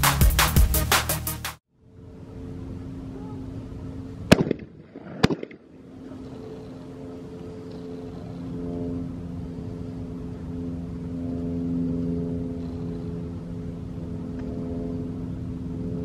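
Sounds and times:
steady low hum: 1.7s - 16.0s
shotgun shots with echo: 4.3s - 5.8s.

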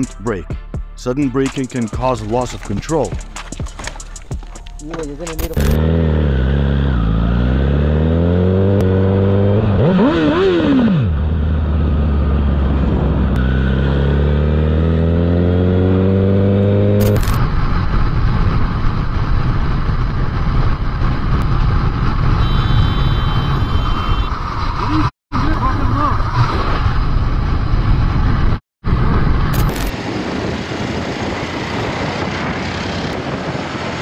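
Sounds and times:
motorcycle engine accelerating: 2.6s - 34.0s
wind rush: 11.3s - 13.4s, 17.2s - 22.6s, 23.4s - 34.0s.

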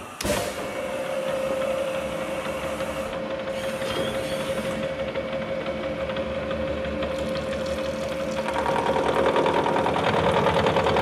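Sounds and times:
milling machine noise: 0.8s - 11.0s.

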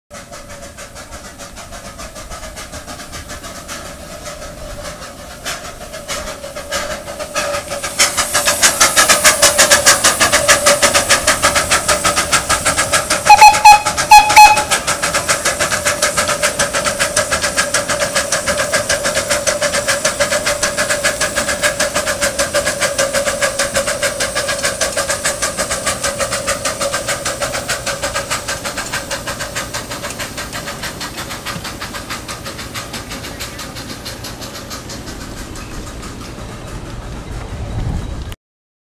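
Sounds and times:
steam locomotive chuffing: 0.1s - 38.4s
steam hiss: 0.2s - 38.4s
train cars rolling: 0.2s - 38.4s
steam whistle toots: 5.5s - 29.1s.

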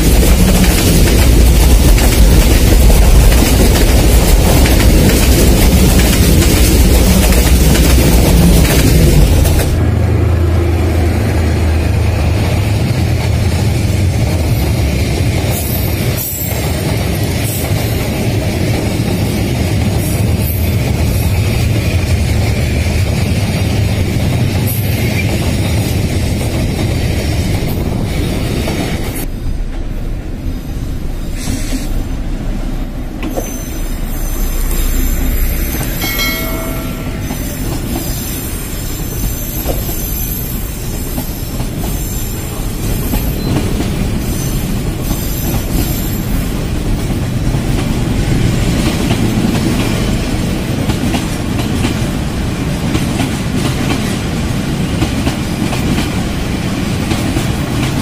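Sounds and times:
train wheels clattering and squealing: 12.3s - 29.3s, 33.2s - 58.0s.

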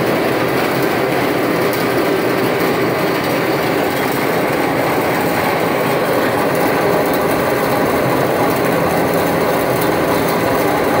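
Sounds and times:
cavitating water crackling rush: 0.0s - 11.0s.

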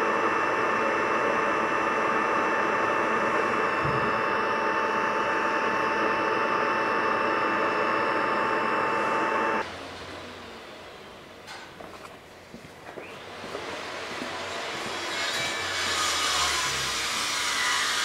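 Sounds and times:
machine running with high whine: 0.0s - 10.7s.

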